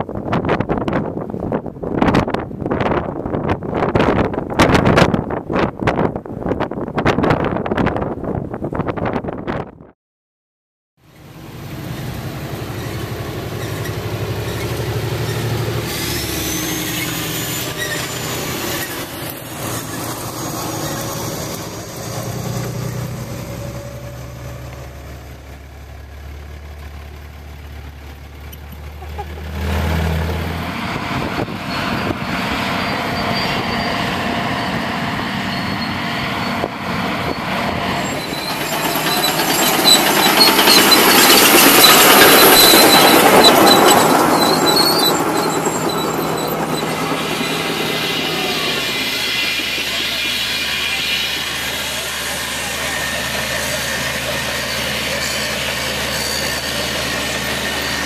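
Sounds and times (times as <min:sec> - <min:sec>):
pickup truck engines humming: 0:11.1 - 0:58.0
construction equipment clattering: 0:37.8 - 0:51.8.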